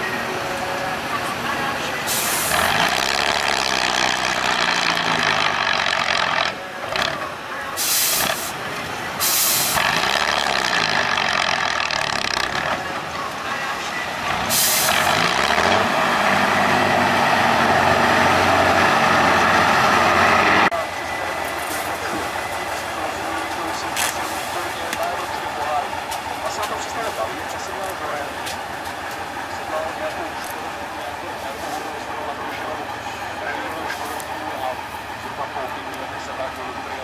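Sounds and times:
truck engine revving: 0.0s - 37.0s
short sharp hisses: 7.8s - 8.5s, 9.2s - 9.8s, 14.5s - 14.9s.

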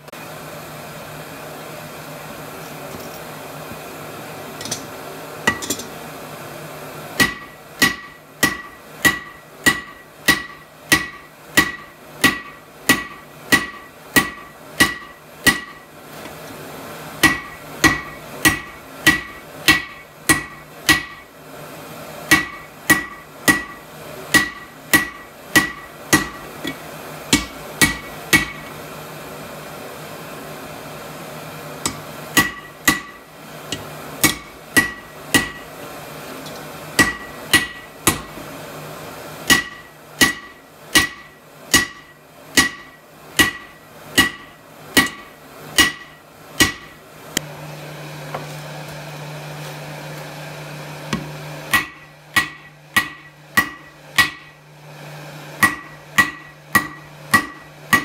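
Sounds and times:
hammer striking metal anvil: 5.5s - 5.9s, 7.2s - 15.9s, 17.2s - 21.2s, 22.3s - 28.7s, 31.8s - 35.6s, 37.0s - 38.4s, 39.5s - 47.0s, 51.2s - 54.6s, 55.6s - 58.0s.

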